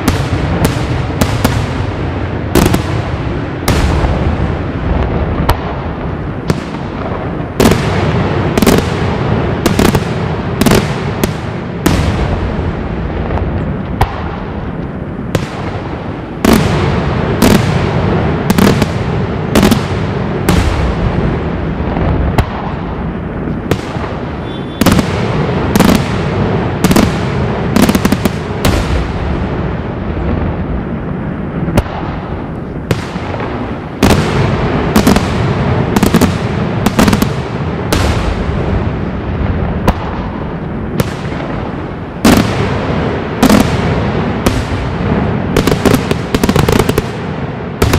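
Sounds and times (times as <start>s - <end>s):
loud sharp bangs: 0.0s - 30.6s, 31.6s - 47.9s
fireworks bursting: 0.0s - 47.9s.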